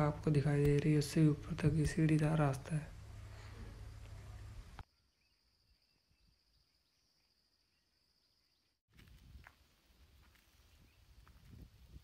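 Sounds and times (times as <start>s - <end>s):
insects chirring: 2.0s - 8.8s.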